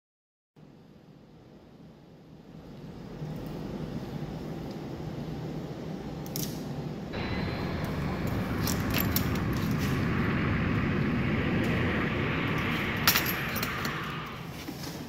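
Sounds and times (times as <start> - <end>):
passing engine rumble: 7.2 - 14.6.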